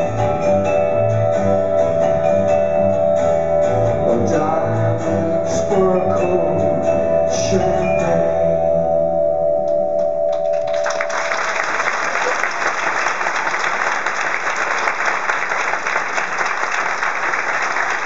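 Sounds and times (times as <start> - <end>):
audience applauding: 10.3 - 18.0.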